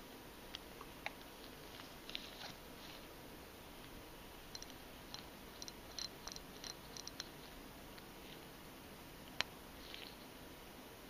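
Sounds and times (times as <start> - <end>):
gloved fingers rustling: 1.2 - 3.2.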